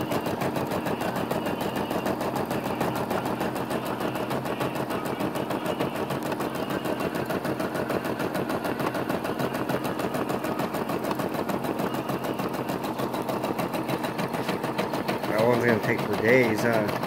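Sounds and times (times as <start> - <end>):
embroidery machine stitching: 0.0 - 17.0.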